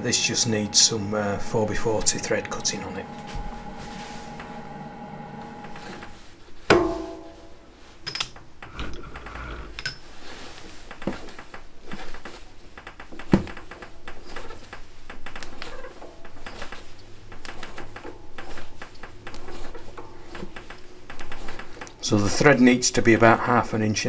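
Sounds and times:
loud ringing metal clank: 6.7s - 7.6s
metal clicks and knocks: 8.0s - 10.1s.

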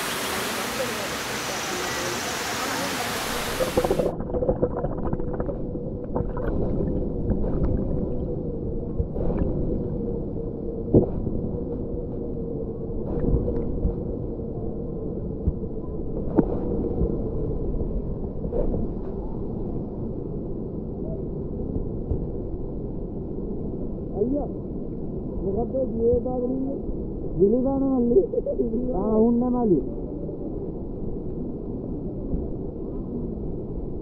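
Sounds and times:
waterfall rushing: 0.0s - 4.2s
faint steady hum: 0.0s - 34.0s
muffled underwater rumble: 0.0s - 34.0s
underwater clicks and knocks: 3.6s - 8.2s.

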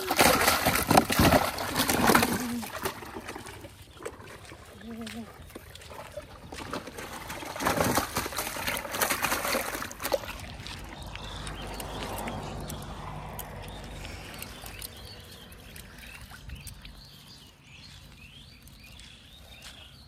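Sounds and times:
outdoor background: 0.0s - 20.0s
footsteps on grass: 15.2s - 20.0s.

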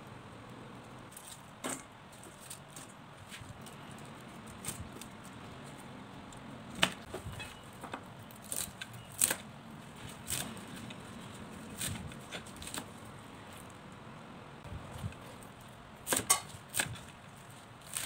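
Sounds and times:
knife chopping on wooden board: 16.0s - 17.1s.

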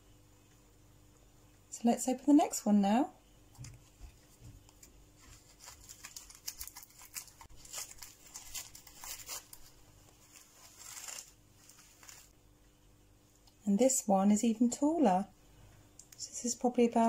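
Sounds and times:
paper crinkling and tearing: 4.7s - 12.3s
scissors snipping paper: 5.3s - 9.6s.

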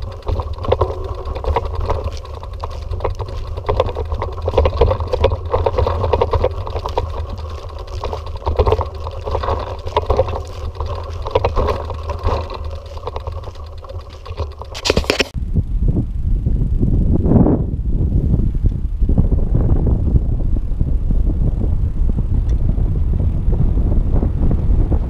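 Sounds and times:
bicycle rattling and clicking: 0.0s - 15.4s
low rumble: 0.0s - 25.0s.

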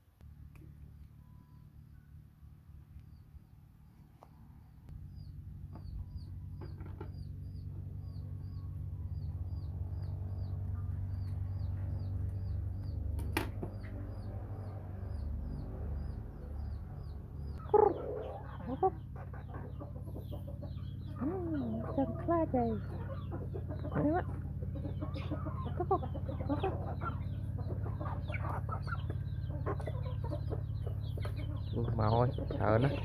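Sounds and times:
low steady hum: 0.0s - 33.0s
chicks peeping: 3.0s - 33.0s
chicken squawks: 17.6s - 31.6s.

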